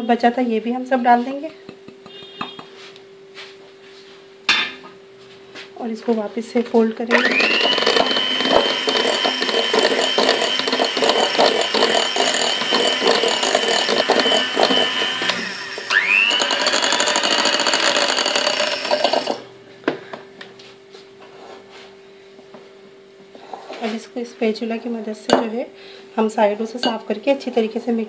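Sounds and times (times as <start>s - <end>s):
electric hand mixer whining: 7.1s - 19.5s.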